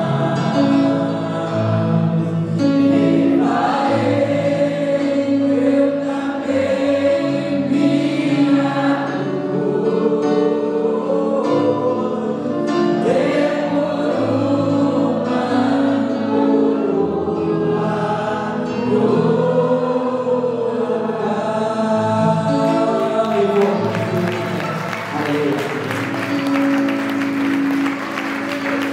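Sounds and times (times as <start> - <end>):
group singing worship song: 0.0 - 28.9
electric guitar: 22.3 - 28.9.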